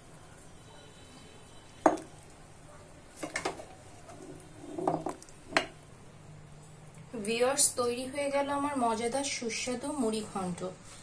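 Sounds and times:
spoon knocking on steel pot: 0:01.9 - 0:02.1
spoon scraping bowl: 0:03.4 - 0:05.2.

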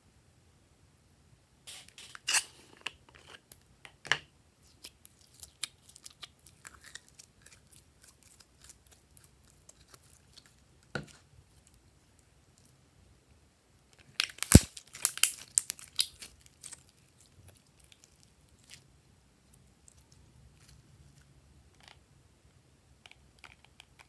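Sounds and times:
slime sticky clicks and pops: 0:14.2 - 0:16.1.

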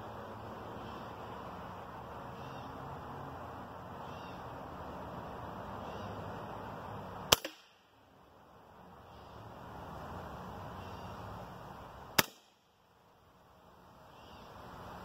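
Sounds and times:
steady background hiss: 0:00.0 - 0:15.0
air rifle shot crack: 0:07.3 - 0:07.8, 0:12.2 - 0:12.6.

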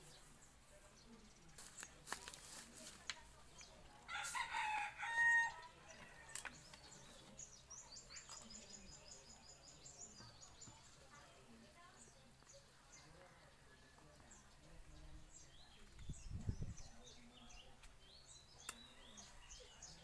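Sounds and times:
rooster crowing: 0:04.1 - 0:05.7.

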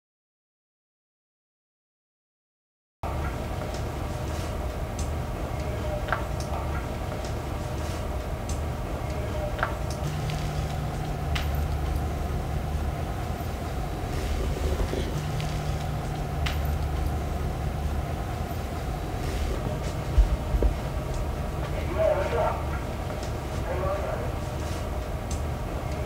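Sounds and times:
steady low rumble: 0:03.0 - 0:26.0
faint clicks: 0:04.9 - 0:13.5, 0:24.4 - 0:26.0.

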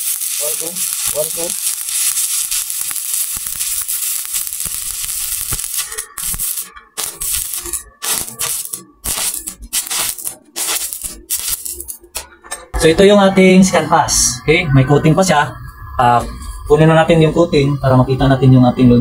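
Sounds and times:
welding arc crackling and sputtering: 0:00.0 - 0:13.8.

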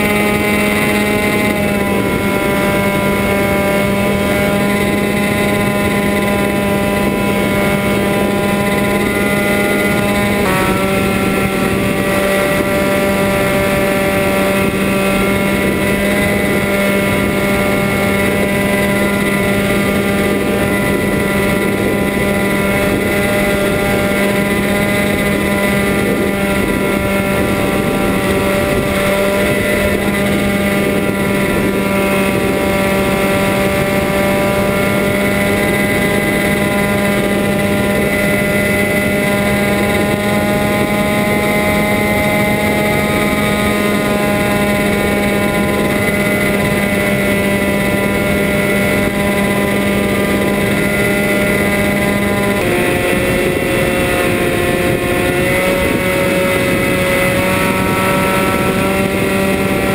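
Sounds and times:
electric motor and propeller hum: 0:00.0 - 0:59.9.

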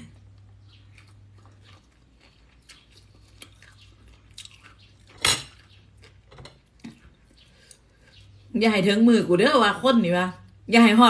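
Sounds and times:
soft chewing: 0:00.0 - 0:08.5.

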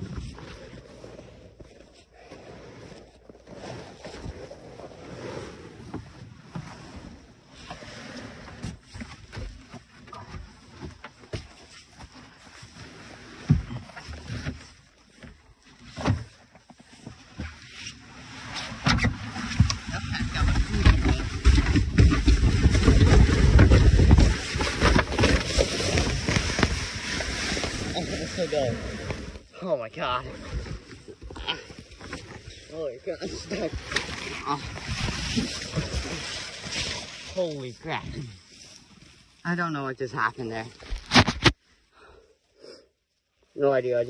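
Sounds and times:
wind rumbling on microphone: 0:00.0 - 0:01.2, 0:18.5 - 0:29.5
kayak hull scraping over snow: 0:00.0 - 0:41.6
kayak knocks: 0:18.6 - 0:29.4
hull brushing through dry grass: 0:22.2 - 0:29.5.

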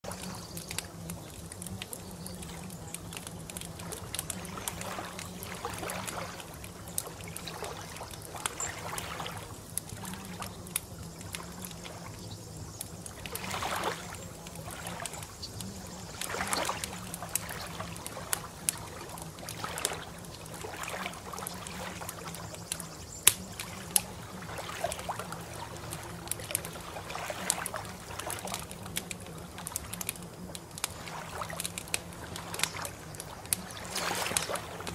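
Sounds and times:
low steady hum: 0:00.0 - 0:34.9
water trickling and sloshing: 0:00.0 - 0:34.9
small sharp clicks: 0:22.7 - 0:24.0.

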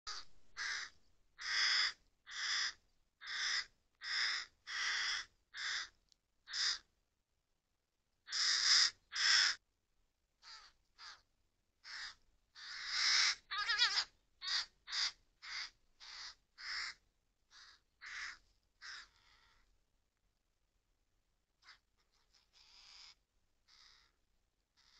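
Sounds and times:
crows cawing: 0:00.1 - 0:06.9, 0:08.3 - 0:09.6, 0:10.4 - 0:11.2, 0:11.8 - 0:19.7, 0:21.6 - 0:24.2.

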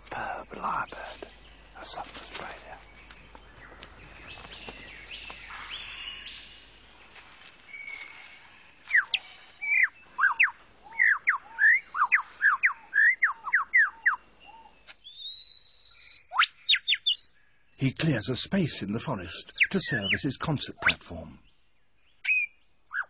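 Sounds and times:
bird whistling: 0:08.9 - 0:17.3, 0:22.2 - 0:23.0.

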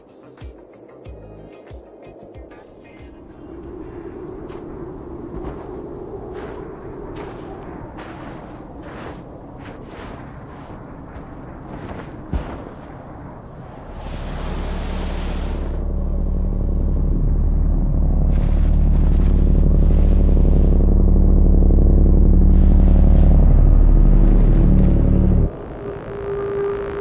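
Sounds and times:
deep sci-fi hum: 0:02.8 - 0:27.0
rushing hiss: 0:13.8 - 0:15.8.

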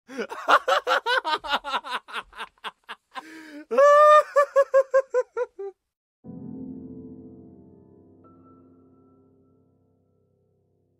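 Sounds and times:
soft music: 0:06.2 - 0:10.9.

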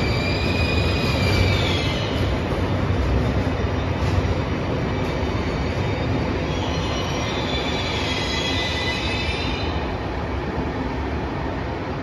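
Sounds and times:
high brake squeal: 0:00.0 - 0:02.4, 0:05.4 - 0:09.8
train wheels rumbling on rails: 0:00.0 - 0:12.0.

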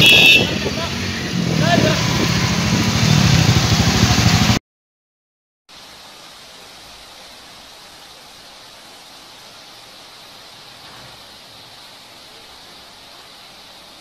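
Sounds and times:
motor vehicle engines: 0:00.0 - 0:04.6
heavy rain hiss on trees: 0:00.1 - 0:04.6, 0:05.7 - 0:14.0.

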